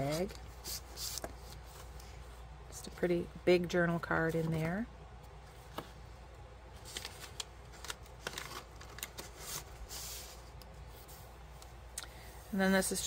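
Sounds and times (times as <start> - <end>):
paper sliding rustle: 0.0 - 2.3, 6.8 - 11.8
paper ticks and crinkles: 6.8 - 10.8.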